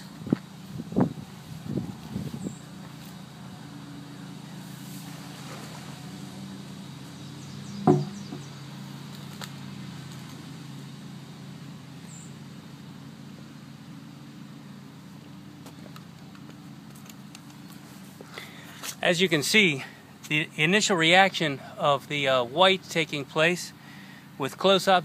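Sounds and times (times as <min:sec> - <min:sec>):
low mechanical hum: 0:00.0 - 0:25.0
loud sharp knock: 0:07.8 - 0:08.4.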